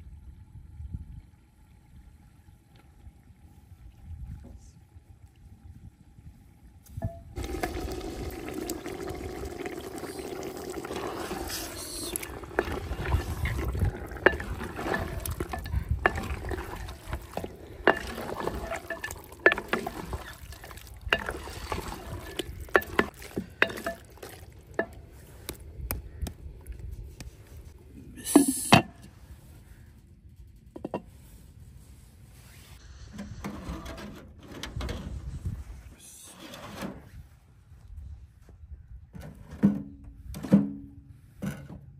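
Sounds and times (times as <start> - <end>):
wooden spoon scraping a pot: 10.2 - 25.0.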